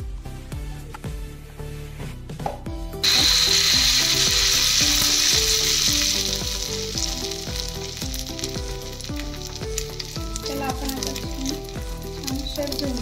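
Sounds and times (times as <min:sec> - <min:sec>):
batter sizzling in hot oil: 0:03.0 - 0:13.0.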